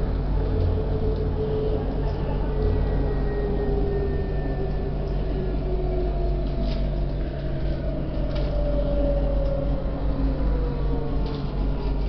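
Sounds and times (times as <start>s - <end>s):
tram rolling on rails: 0.0s - 12.0s.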